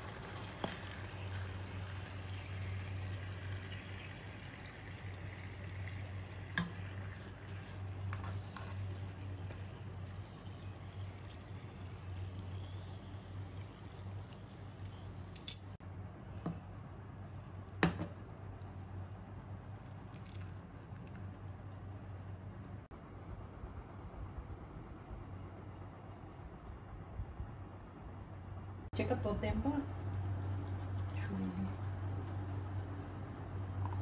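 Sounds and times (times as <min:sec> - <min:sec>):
hot sauce hissing: 0:00.0 - 0:13.2
steady low hum: 0:00.0 - 0:34.0.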